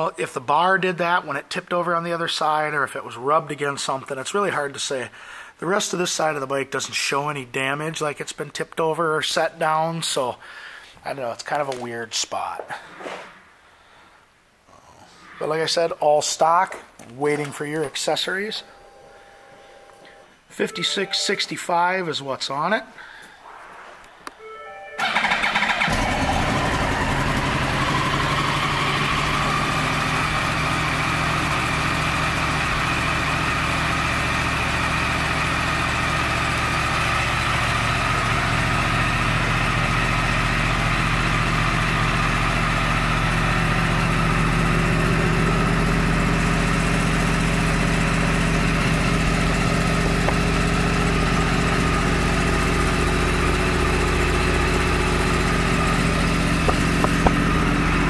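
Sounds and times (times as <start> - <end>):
motorcycle engine starting and idling: 25.0 - 58.0.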